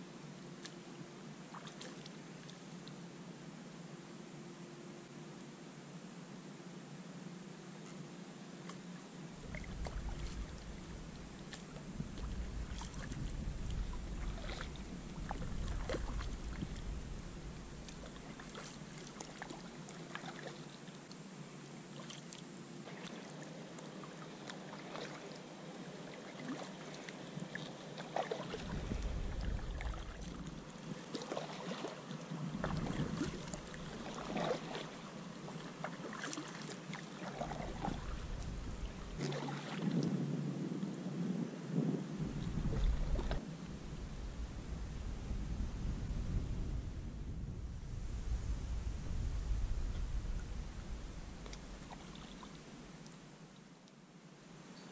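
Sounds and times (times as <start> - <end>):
wind rumble on microphone: 9.3 - 19.8, 28.4 - 35.7, 37.2 - 53.0
paddle splashing in water: 9.4 - 21.2, 21.9 - 40.1, 42.3 - 44.3, 50.2 - 52.8.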